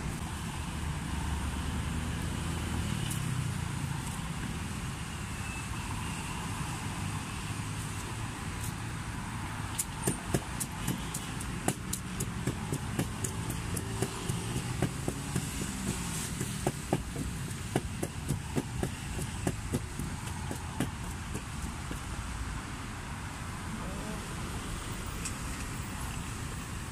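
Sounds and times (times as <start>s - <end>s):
road traffic rumble: 0.0s - 26.9s
wooden pestle pounding in mortar: 9.9s - 22.0s.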